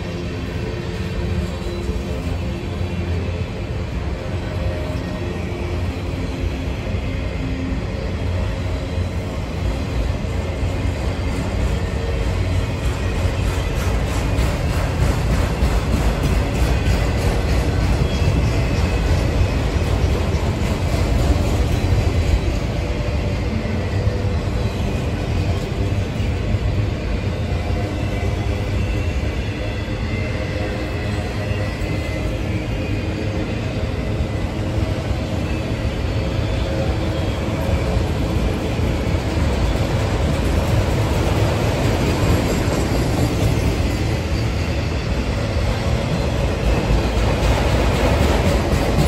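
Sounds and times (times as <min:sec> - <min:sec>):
steel wheels rumbling on rail: 0:00.0 - 0:49.0.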